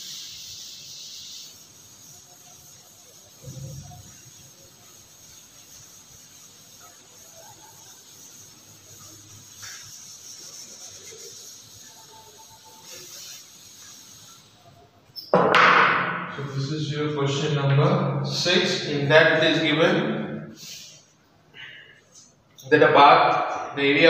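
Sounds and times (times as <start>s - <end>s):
duster rubbing on chalkboard: 0.0s - 14.7s.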